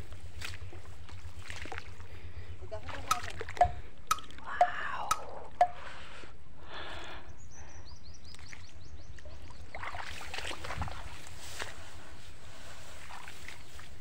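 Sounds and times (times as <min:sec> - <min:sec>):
water sloshing: 0:00.2 - 0:04.5
water drops plopping: 0:02.9 - 0:05.8.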